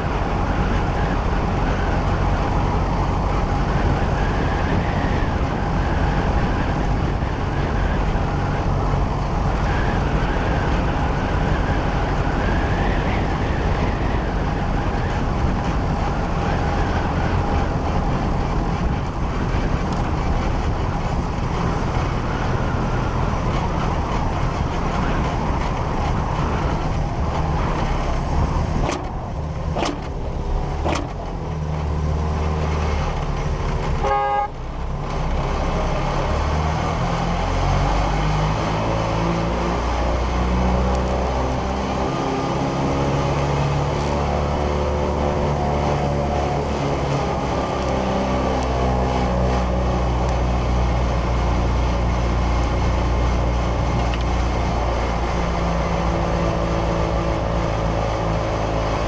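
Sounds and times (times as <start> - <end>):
race car engine running: 0.0 - 59.0
sharp clicks: 28.8 - 30.2.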